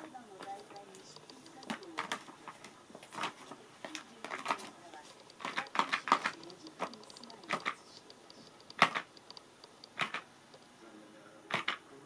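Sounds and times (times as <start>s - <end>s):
plastic toy clicks and clacks: 4.2s - 10.2s.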